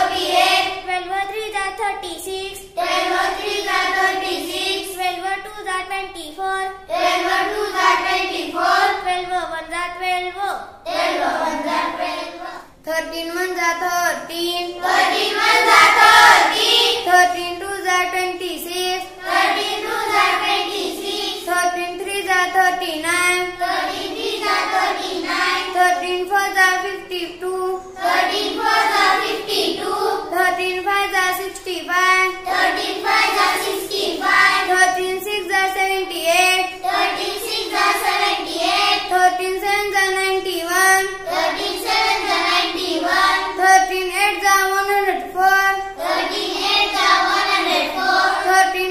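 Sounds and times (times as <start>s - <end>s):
girl chanting in sing-song voice: 0.0s - 48.9s.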